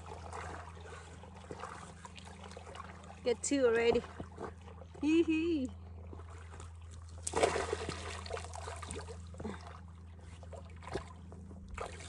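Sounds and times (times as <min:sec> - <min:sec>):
faint trickling water: 0:00.0 - 0:07.2
splash into water: 0:07.2 - 0:09.2.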